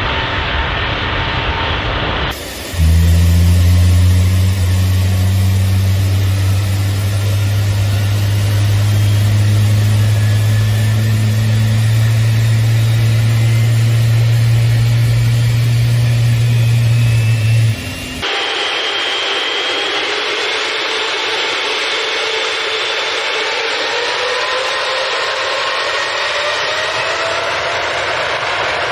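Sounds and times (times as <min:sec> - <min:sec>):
jet engine deep hum: 0:00.0 - 0:18.3
high engine whine: 0:00.0 - 0:28.9.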